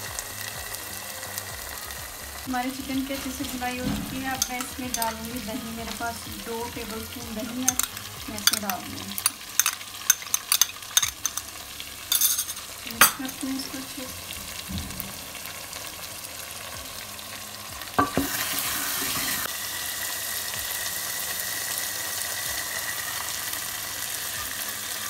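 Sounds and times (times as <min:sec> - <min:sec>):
chicken frying in pot: 0:00.0 - 0:25.0
sizzling in hot oil: 0:00.0 - 0:25.0
spoon clinking on pot: 0:04.2 - 0:05.3, 0:07.4 - 0:13.5, 0:18.0 - 0:18.4.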